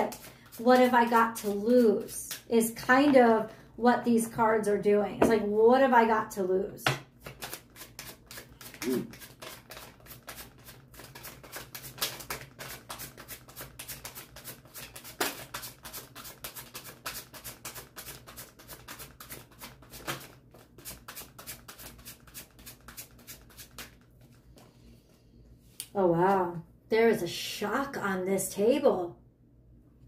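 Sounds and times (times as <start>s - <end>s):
cards being shuffled: 7.2s - 24.4s.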